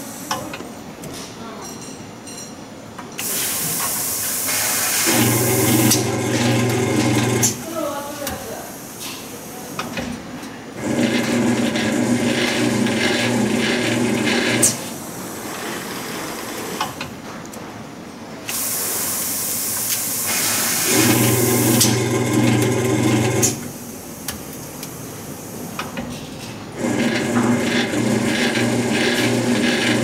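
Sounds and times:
motor hum: 5.0 - 7.6.

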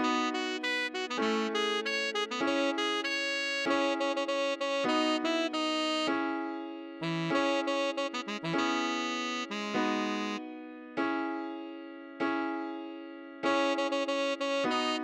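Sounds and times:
tenor saxophone melody: 0.0 - 6.2, 7.0 - 10.5, 13.5 - 15.0
piano chords: 0.0 - 15.0.

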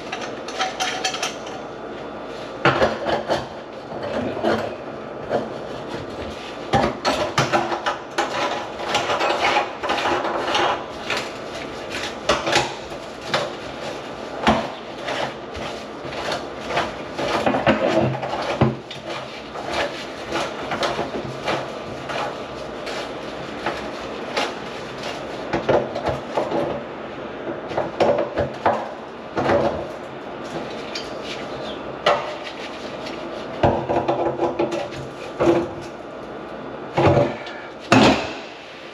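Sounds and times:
knocking and clanking on pipes: 2.6 - 11.3, 33.6 - 35.8, 37.0 - 38.6.

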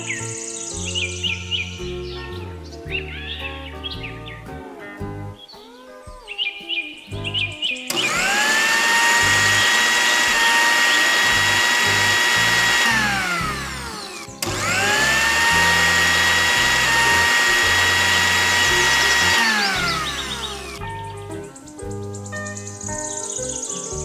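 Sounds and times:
mixer grinder motor whining: 7.9 - 20.8.

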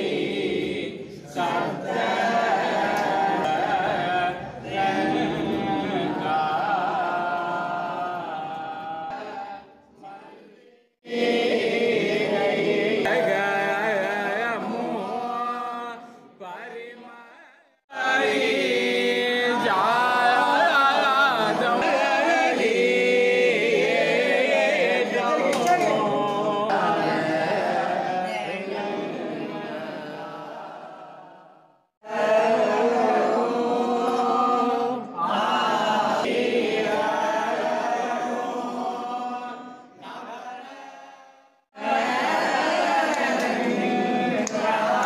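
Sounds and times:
group chanting a hymn: 0.0 - 45.0.

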